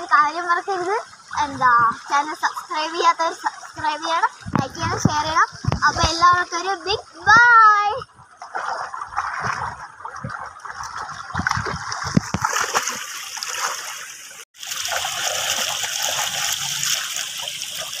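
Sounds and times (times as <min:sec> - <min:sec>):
stream running water: 0:00.0 - 0:18.0
water splashing from kicking legs: 0:08.2 - 0:18.0.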